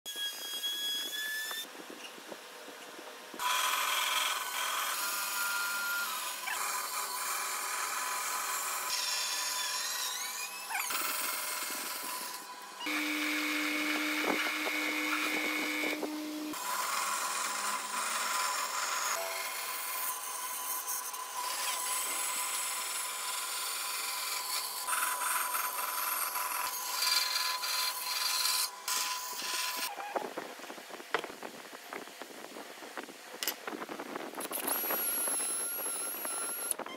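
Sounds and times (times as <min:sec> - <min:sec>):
drill press boring wood: 0:03.4 - 0:29.9
saw blade cutting wood: 0:03.4 - 0:30.1.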